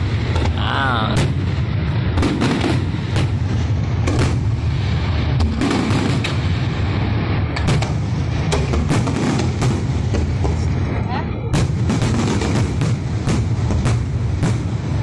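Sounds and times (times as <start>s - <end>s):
continuous low rumble: 0.0s - 15.0s
fireworks bursting bangs: 0.0s - 15.0s.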